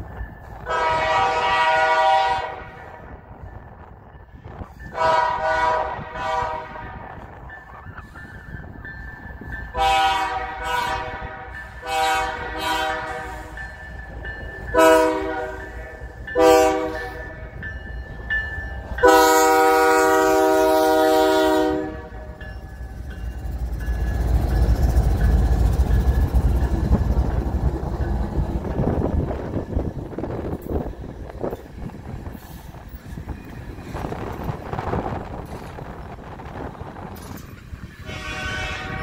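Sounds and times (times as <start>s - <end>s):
locomotive engines and wheels rumbling: 0.0s - 39.0s
locomotive air horn blasts: 0.6s - 3.1s, 4.9s - 7.2s, 9.7s - 13.6s, 14.7s - 17.4s, 19.0s - 22.4s, 38.0s - 39.0s.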